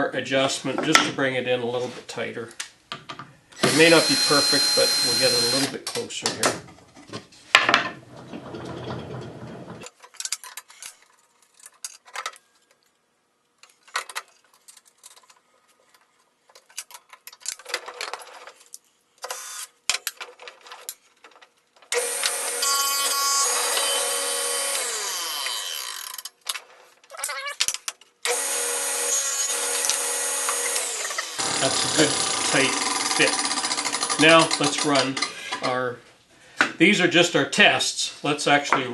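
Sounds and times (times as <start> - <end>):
table saw motor running: 3.6 - 5.7, 22.0 - 26.1, 28.3 - 34.5
metal clicks and clatter: 8.5 - 12.9, 13.6 - 18.8.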